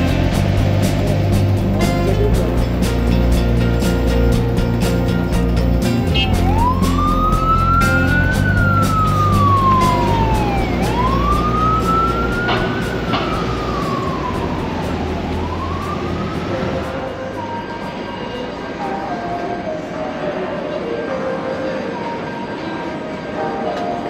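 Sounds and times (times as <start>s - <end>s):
street traffic: 0.0s - 24.0s
emergency siren wailing: 6.1s - 19.9s.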